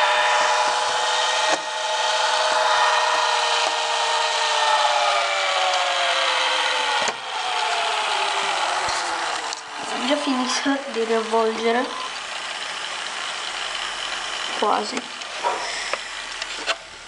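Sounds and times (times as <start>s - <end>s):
cassette player rewinding whir: 0.0s - 17.0s.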